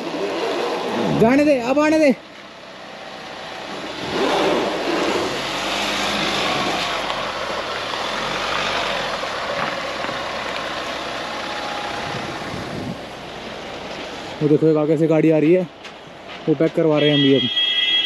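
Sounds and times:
suv engine under load: 0:02.2 - 0:14.6
tyres on gravel: 0:04.1 - 0:14.5.

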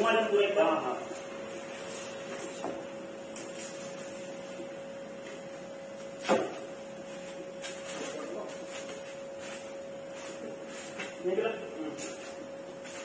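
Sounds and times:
steady high hum: 0:00.0 - 0:13.0
table thumping on floor: 0:06.2 - 0:06.6.

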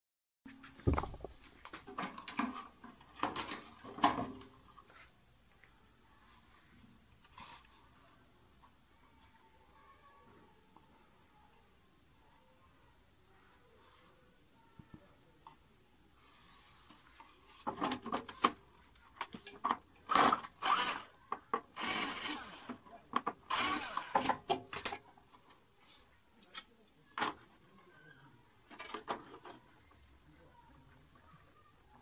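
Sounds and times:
cordless drill driving screw: 0:20.1 - 0:21.1, 0:21.8 - 0:22.7, 0:23.5 - 0:24.3.

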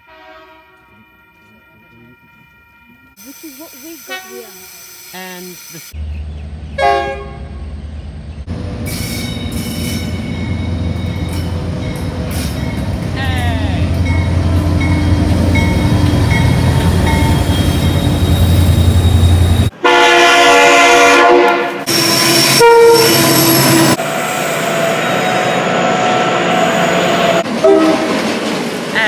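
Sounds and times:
locomotive horn chords: 0:00.0 - 0:05.4, 0:06.7 - 0:07.8, 0:13.0 - 0:24.0, 0:26.6 - 0:28.2
rolling train noise: 0:00.0 - 0:29.0.

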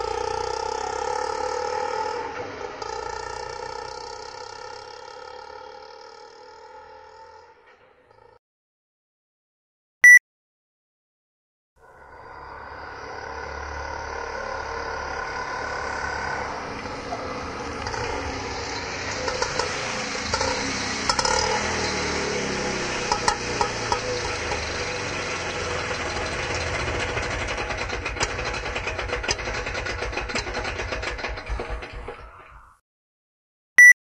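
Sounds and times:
rickshaw engine running: 0:00.0 - 0:08.4, 0:11.9 - 0:32.8
clicks and rattles: 0:26.0 - 0:32.4.

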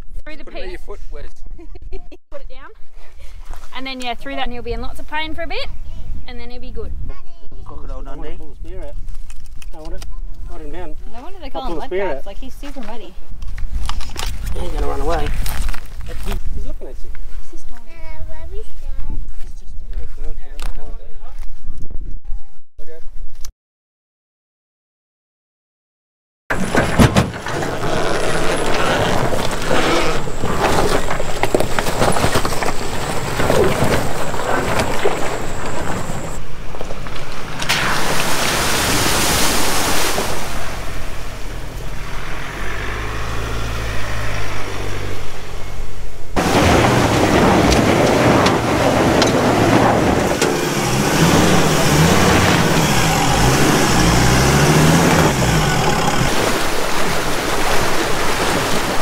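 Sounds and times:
off-road vehicle engines: 0:02.4 - 0:20.8, 0:26.5 - 0:59.0
water splashing: 0:37.2 - 0:45.1, 0:46.4 - 0:59.0
engine revving: 0:40.5 - 0:45.8, 0:46.4 - 0:56.8.

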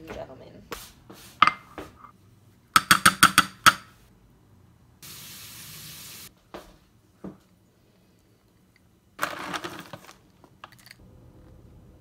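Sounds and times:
spraying hiss: 0:05.0 - 0:06.3.

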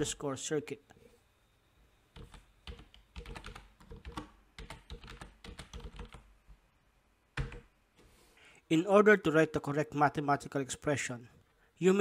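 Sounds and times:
computer keyboard typing: 0:02.1 - 0:06.3, 0:07.4 - 0:07.7.

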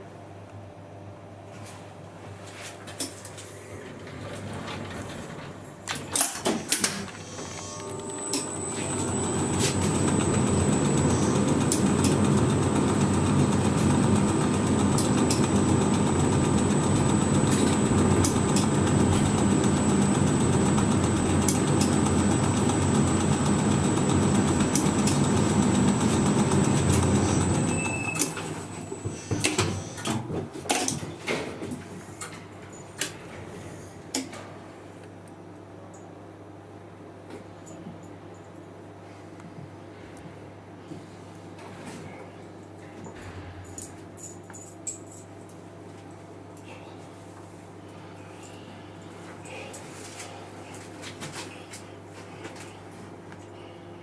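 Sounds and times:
elevator rumble and whine: 0:03.7 - 0:06.2, 0:06.9 - 0:30.1.

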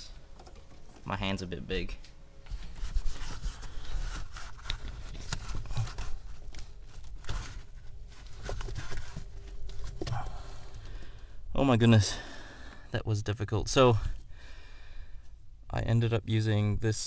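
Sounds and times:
gloved hands rustling and scraping: 0:00.2 - 0:11.3.

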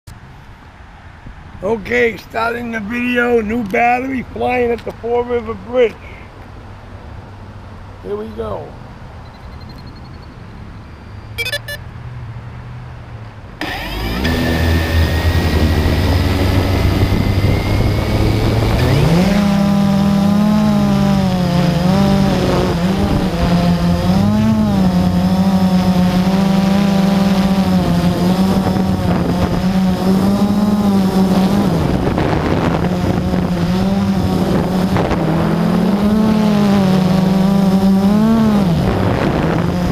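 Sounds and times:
quadcopter motors humming: 0:13.6 - 0:39.9.

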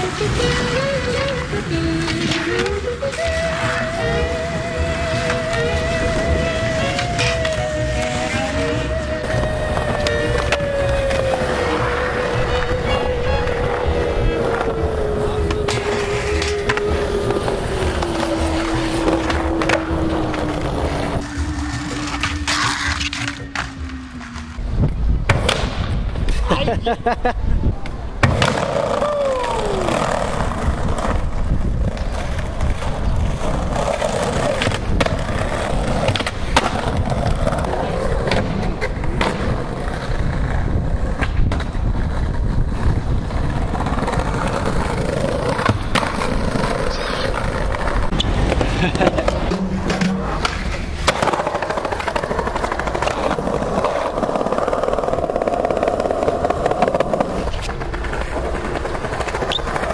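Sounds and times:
skateboards clacking on ground: 0:00.0 - 0:27.2, 0:27.8 - 0:59.9
skateboard wheels rolling on paving: 0:00.0 - 0:59.9.

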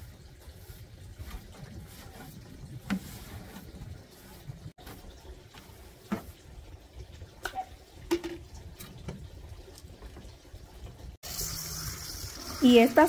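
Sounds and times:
hose spraying water into bucket: 0:11.2 - 0:13.0.

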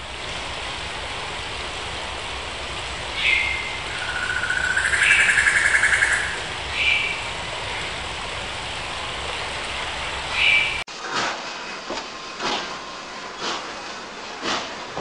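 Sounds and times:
stream rushing: 0:00.0 - 0:10.8
songbirds calling: 0:03.1 - 0:08.0, 0:10.3 - 0:10.8
rapid bird trill: 0:03.2 - 0:07.2.

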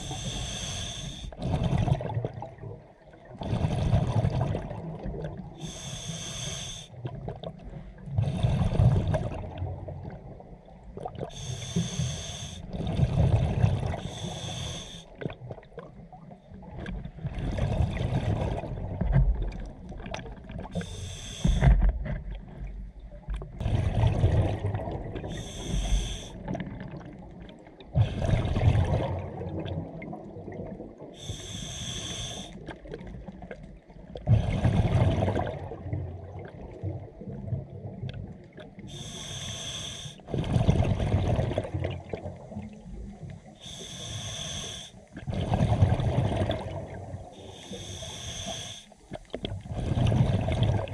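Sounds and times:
diver inhaling through regulator: 0:00.0 - 0:01.6, 0:05.6 - 0:07.0, 0:11.2 - 0:12.7, 0:13.9 - 0:15.2, 0:20.8 - 0:21.8, 0:25.2 - 0:26.5, 0:31.2 - 0:32.6, 0:38.9 - 0:40.3, 0:43.5 - 0:45.3, 0:47.3 - 0:49.0
exhaled air bubbling: 0:00.0 - 0:50.9.

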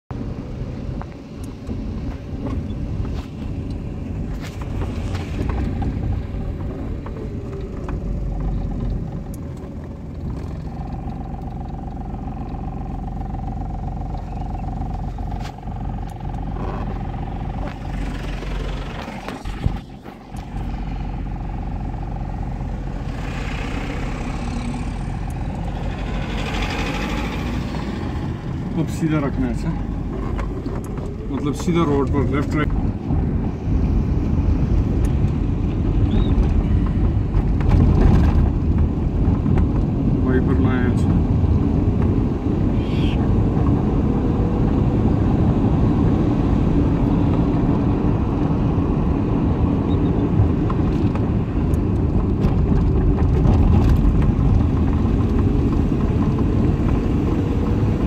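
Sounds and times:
engine and tyre rumble: 0:00.0 - 0:58.0
steady whine: 0:04.6 - 0:35.4.

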